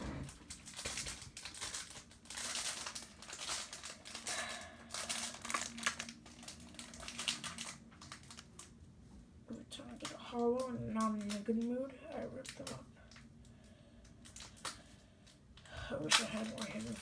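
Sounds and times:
trading card tearing and crumpling: 0:00.3 - 0:08.8, 0:16.1 - 0:17.0.

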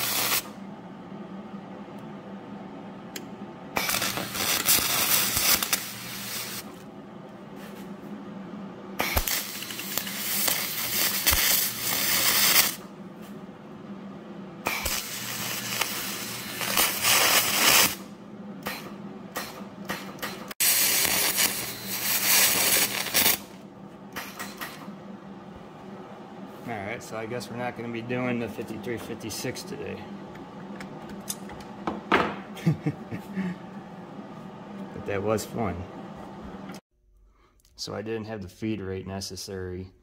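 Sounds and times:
welding arc crackling: 0:00.0 - 0:00.6, 0:03.7 - 0:06.8, 0:09.0 - 0:12.8, 0:14.7 - 0:18.0, 0:20.6 - 0:23.6
welder hum: 0:00.0 - 0:36.8.

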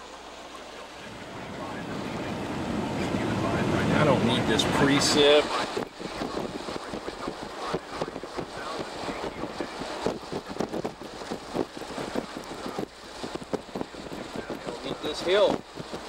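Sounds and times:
road noise inside moving car: 0:00.0 - 0:05.7
wind noise: 0:01.0 - 0:16.0.

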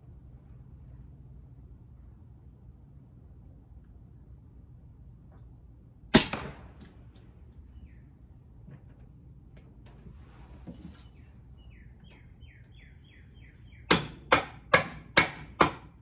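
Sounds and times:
air rifle shot: 0:06.1 - 0:07.0
faint bird chirps: 0:10.9 - 0:13.9.

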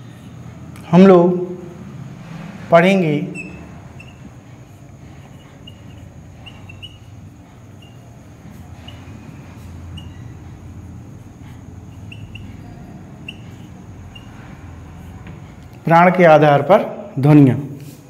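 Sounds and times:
low steady hum: 0:00.0 - 0:16.1
marker squeaking on whiteboard: 0:03.2 - 0:15.8
marker strokes on whiteboard: 0:03.4 - 0:15.6.

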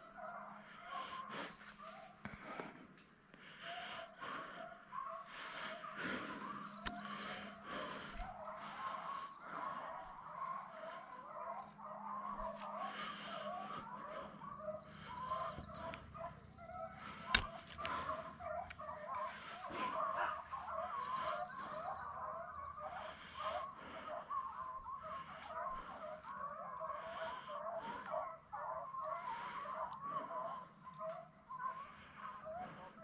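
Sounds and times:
hounds baying: 0:00.0 - 0:33.0
sharp crack: 0:17.3 - 0:18.0.

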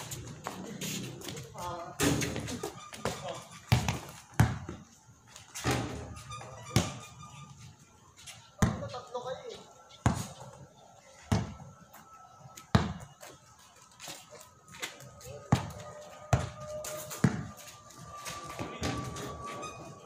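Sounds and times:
basketball bouncing on concrete: 0:02.2 - 0:04.8, 0:08.6 - 0:08.9, 0:10.0 - 0:10.4, 0:11.3 - 0:11.6, 0:12.7 - 0:13.1, 0:15.5 - 0:17.5, 0:18.6 - 0:19.2.

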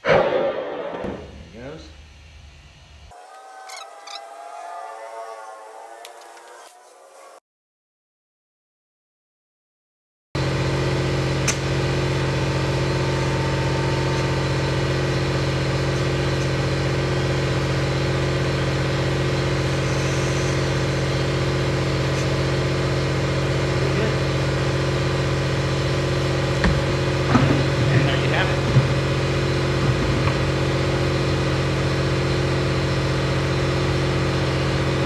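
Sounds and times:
air compressor motor humming: 0:10.4 - 0:35.0
knocks: 0:26.6 - 0:29.1.

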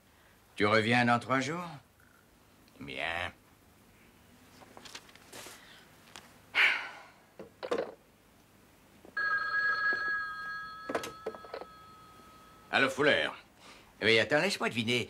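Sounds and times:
telephone two-tone ring: 0:09.2 - 0:13.0.

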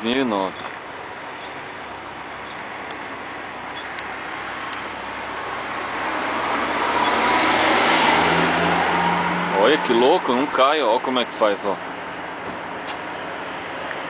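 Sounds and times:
vending machine picker whirring: 0:00.5 - 0:03.9.

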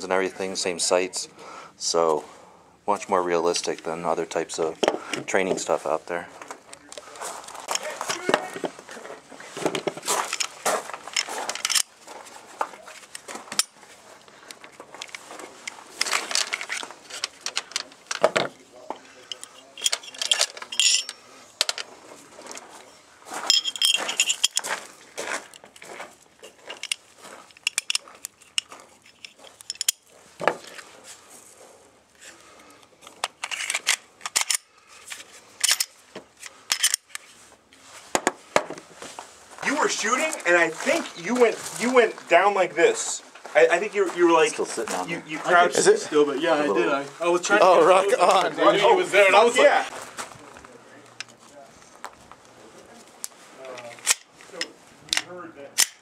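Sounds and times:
pistol handling rattling and clicks: 0:09.8 - 0:12.0, 0:13.1 - 0:18.5, 0:19.2 - 0:21.9, 0:23.5 - 0:24.7, 0:25.4 - 0:30.8, 0:32.7 - 0:37.4, 0:53.2 - 0:56.0.

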